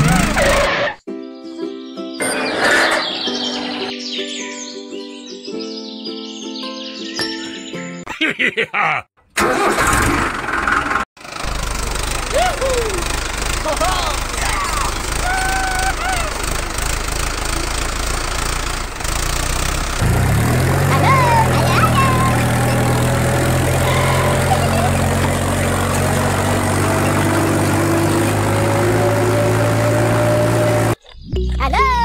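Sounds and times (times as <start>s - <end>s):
tractor engine running: 0.0s - 0.7s, 9.2s - 31.6s.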